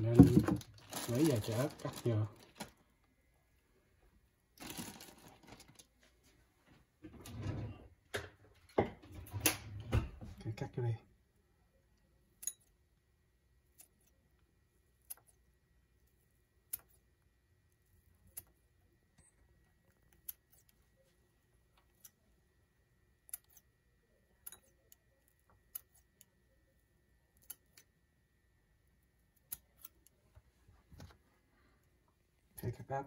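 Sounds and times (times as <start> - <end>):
scissors snipping pepper: 15.0 - 15.4, 20.0 - 20.8, 23.2 - 23.7, 24.4 - 26.3, 27.4 - 27.9, 29.4 - 30.1.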